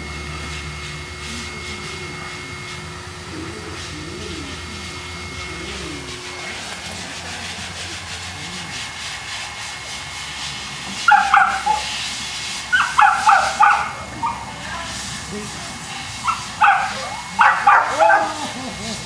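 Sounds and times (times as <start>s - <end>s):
dog barking: 11.1s - 11.9s, 12.7s - 14.6s, 16.2s - 18.6s.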